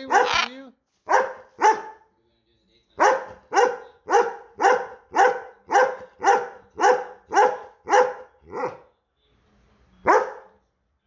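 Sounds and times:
dog barking: 0.0 - 2.1, 3.0 - 8.9, 10.0 - 10.6.

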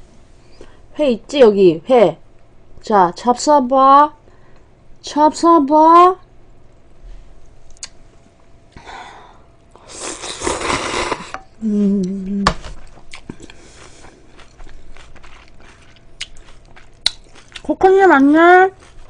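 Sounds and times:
chewing clicks: 7.7 - 8.0, 13.1 - 17.8
woman slurping noodles: 9.8 - 11.4
woman humming: 10.2 - 12.7.

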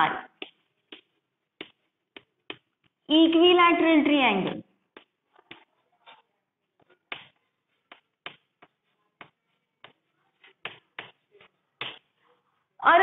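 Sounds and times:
chalk tapping on chalkboard: 0.3 - 3.0, 4.9 - 5.7, 6.8 - 12.1.

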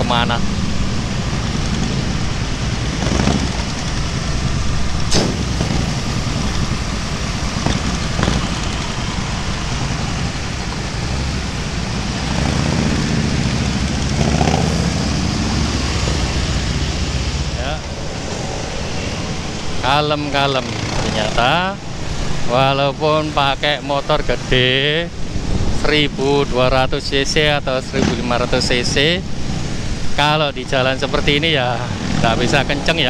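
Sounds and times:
motorcycle engines rumbling: 0.0 - 33.0.

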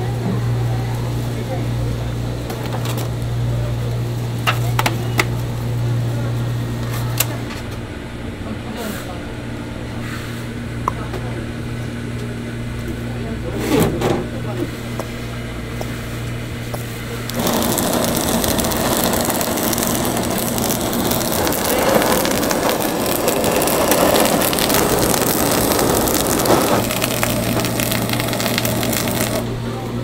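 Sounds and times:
blowtorches hissing: 17.3 - 29.5.

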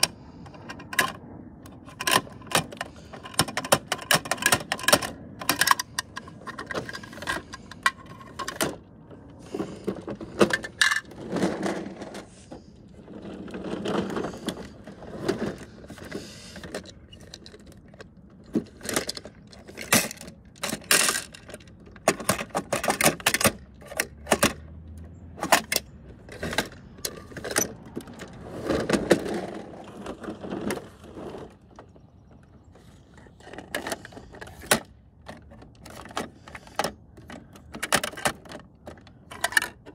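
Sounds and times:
toy plastic clicks and clacks: 0.0 - 8.9, 14.2 - 24.7, 25.4 - 29.3, 33.1 - 39.9
plastic rattles: 0.0 - 39.9.

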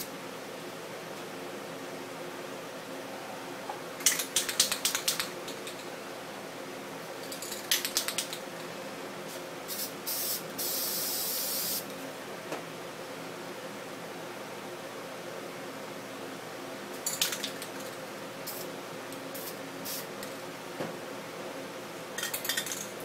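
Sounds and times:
faint steady hum: 0.0 - 23.0
spray can spraying: 9.7 - 11.8, 19.4 - 20.1.

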